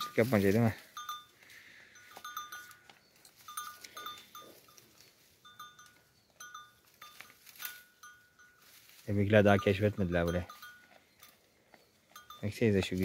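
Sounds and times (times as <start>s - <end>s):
sheep bell clinking: 0.0s - 13.0s.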